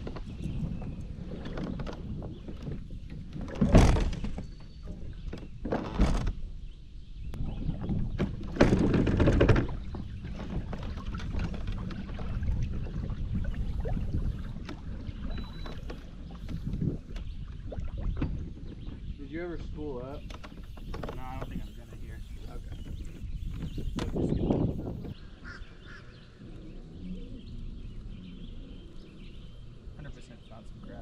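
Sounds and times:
kayak hull scraping pebbles: 7.6 - 25.2
water sloshing: 7.8 - 25.2.

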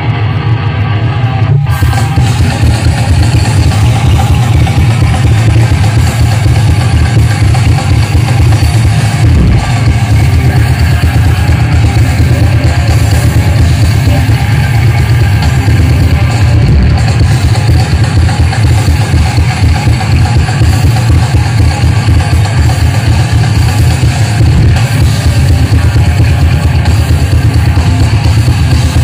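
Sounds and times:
distorted electric guitars: 0.0 - 29.0
pounding drum kit: 0.0 - 29.0
rock band playing: 0.0 - 29.0.

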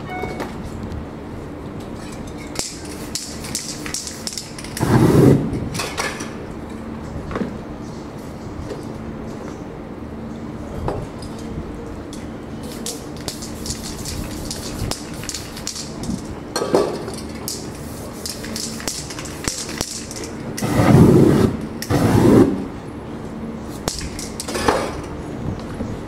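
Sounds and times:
steady low hum: 0.0 - 26.0
spray-paint cans hissing: 2.5 - 5.4, 12.6 - 16.3, 17.1 - 22.5.

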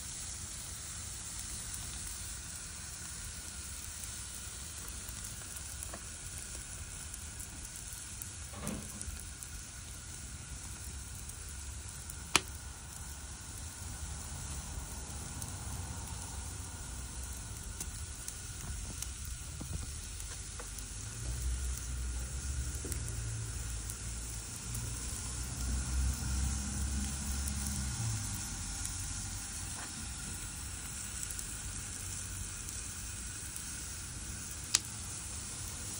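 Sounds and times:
squid sizzling on a grill: 0.0 - 35.9.

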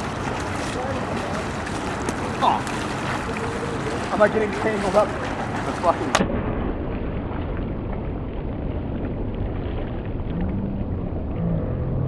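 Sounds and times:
steady rushing outdoor noise: 0.0 - 12.0
low rumble: 6.0 - 12.0.

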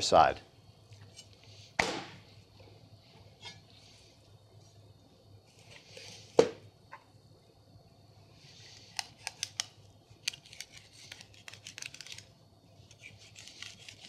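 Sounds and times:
knife blade scraping: 1.0 - 1.4, 3.4 - 3.8, 12.9 - 14.0.

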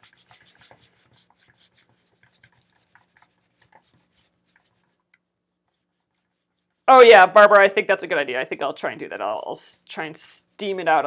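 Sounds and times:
cloth scrubbing metal plate: 0.0 - 7.5.

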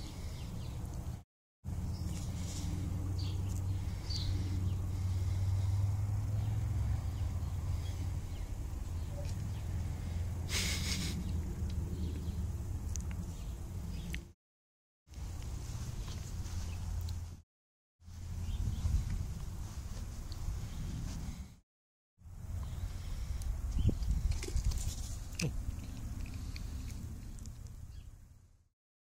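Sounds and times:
wind rumble on microphone: 18.1 - 21.6, 22.5 - 28.0.

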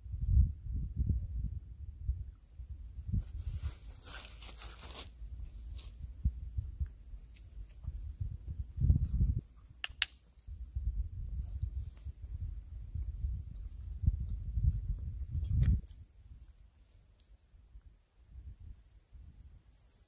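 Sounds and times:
rustle: 3.1 - 10.8, 13.0 - 20.0.

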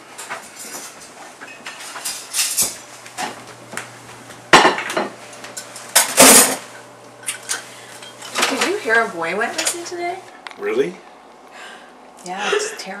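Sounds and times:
dishes and pots clattering: 0.2 - 3.4, 4.6 - 8.8.

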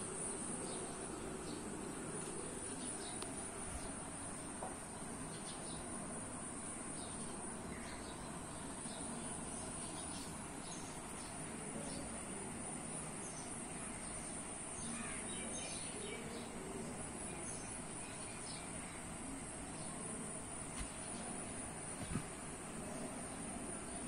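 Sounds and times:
faint bird chirps: 6.6 - 24.0.

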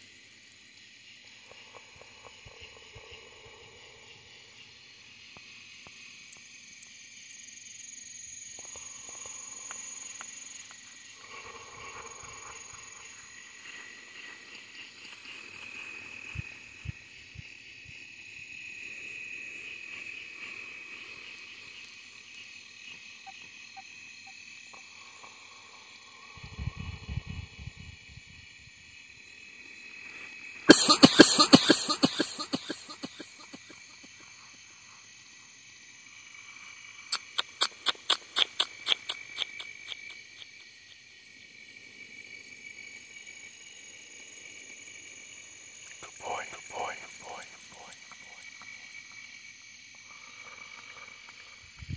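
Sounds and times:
insect chorus chirring: 0.0 - 51.9
evenly spaced sharp clicks: 37.2 - 40.7.

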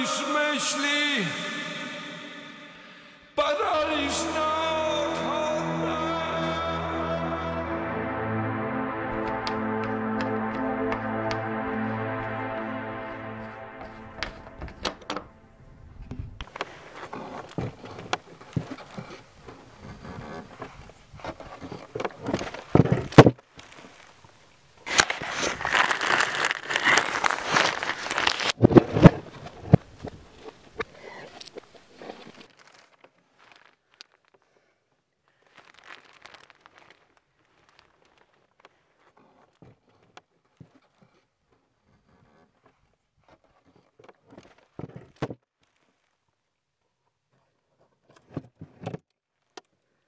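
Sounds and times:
music: 3.4 - 16.3
faint crinkling and crunching: 16.4 - 22.8, 23.4 - 44.8, 45.5 - 48.1.

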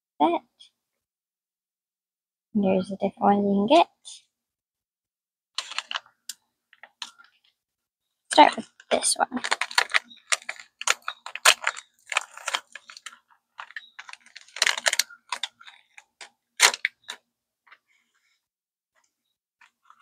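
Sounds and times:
wrapper packet crinkling: 5.6 - 6.1, 8.8 - 17.2.

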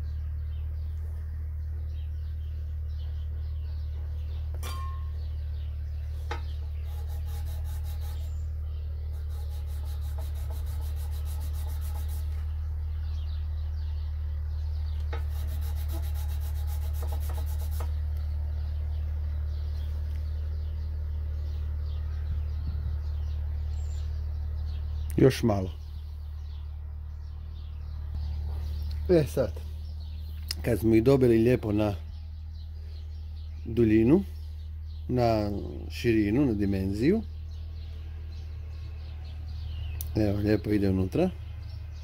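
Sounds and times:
steady low hum: 0.0 - 42.0
brush scratching on sandpaper: 6.7 - 8.4, 9.1 - 12.5, 15.2 - 18.0.

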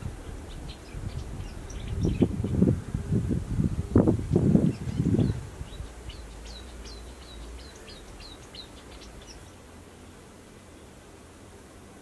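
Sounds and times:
songbird singing high notes: 4.6 - 9.6.

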